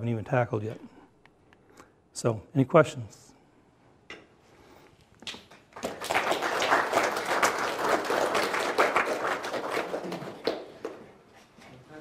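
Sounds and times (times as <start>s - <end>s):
audience applauding: 5.6s - 11.1s.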